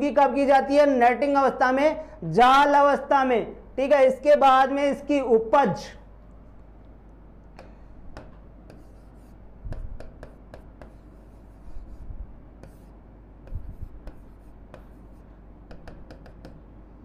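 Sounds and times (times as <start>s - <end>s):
pen scratching on a board: 7.6s - 16.6s.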